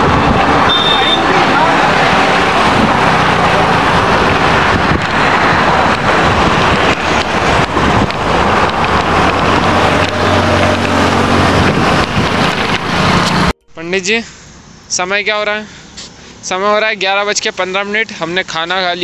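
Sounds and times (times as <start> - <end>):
wind rushing over microphone: 0.0 - 13.6
road traffic passing: 0.0 - 19.0.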